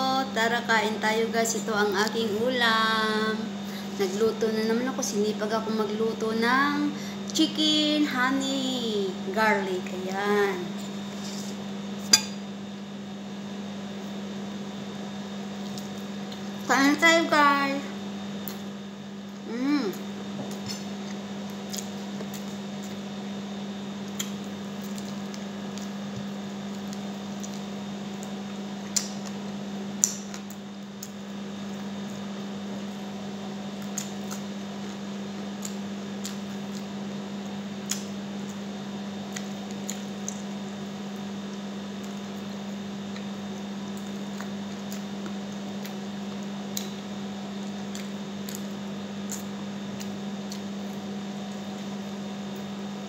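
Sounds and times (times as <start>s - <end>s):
steady electrical hum: 0.0s - 53.0s
person chewing food: 20.5s - 23.1s, 24.0s - 31.3s, 33.7s - 37.0s, 37.8s - 40.6s, 43.1s - 51.9s.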